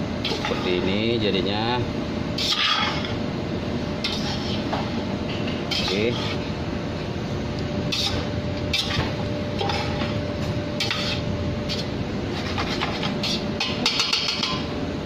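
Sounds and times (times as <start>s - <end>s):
faint hum: 0.0s - 15.0s
spatula scraping rice in metal pot: 2.4s - 3.0s.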